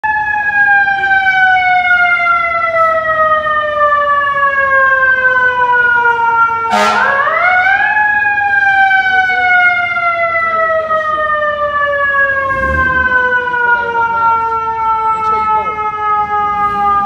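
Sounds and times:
fire truck siren wailing: 0.0s - 17.0s
short loud horn blast: 6.7s - 7.2s.

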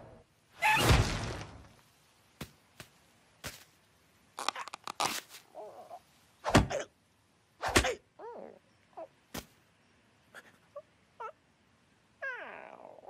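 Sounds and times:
cartoon bird falling cry: 0.6s - 1.2s
cartoon thud: 0.6s - 1.6s, 6.5s - 6.8s.

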